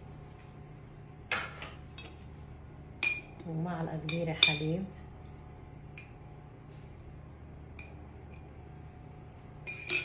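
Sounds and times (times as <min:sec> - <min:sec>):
steady low hum: 0:00.0 - 0:10.0
glass jar and metal spoon clinking: 0:09.6 - 0:10.0.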